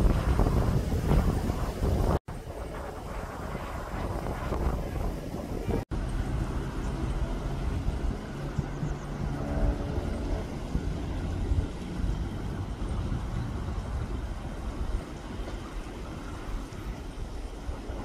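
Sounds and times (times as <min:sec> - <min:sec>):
wind rumbling on microphone: 0:00.0 - 0:18.0
distant engine drone: 0:02.3 - 0:18.0.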